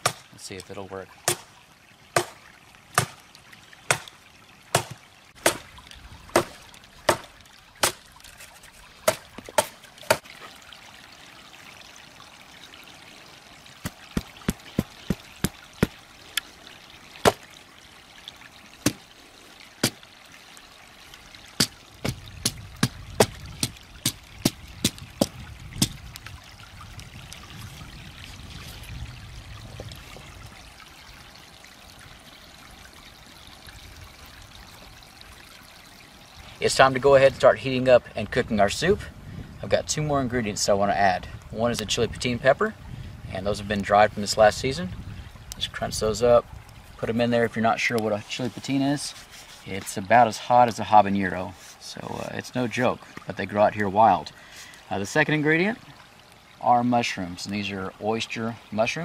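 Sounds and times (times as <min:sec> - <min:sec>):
knife chopping wood: 0:00.0 - 0:00.2, 0:01.2 - 0:01.5, 0:02.2 - 0:02.4, 0:03.0 - 0:03.2, 0:03.9 - 0:04.1, 0:04.7 - 0:05.7, 0:06.4 - 0:08.0, 0:09.0 - 0:10.3, 0:13.8 - 0:16.0, 0:17.2 - 0:17.4, 0:18.8 - 0:19.0, 0:21.6 - 0:26.0
creek water trickling: 0:00.0 - 0:59.0.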